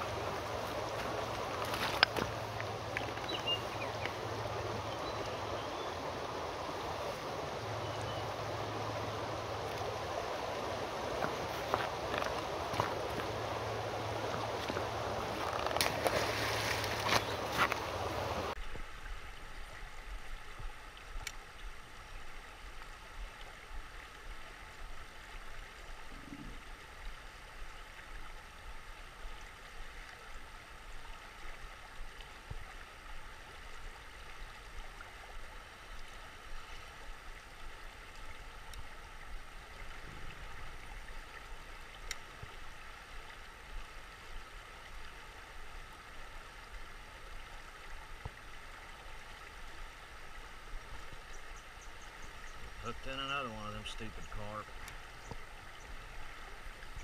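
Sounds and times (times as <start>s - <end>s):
river rushing over riffle: 0.0s - 18.6s
faint clicks: 42.0s - 42.4s.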